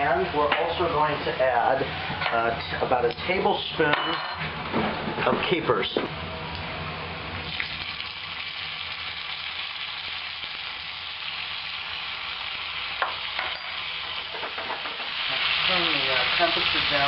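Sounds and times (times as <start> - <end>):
vegetables sizzling in oil: 7.4 - 17.0.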